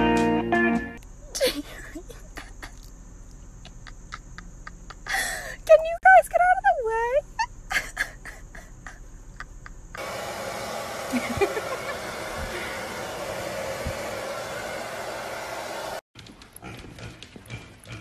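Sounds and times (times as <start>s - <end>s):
hair dryer blowing: 10.0s - 16.0s.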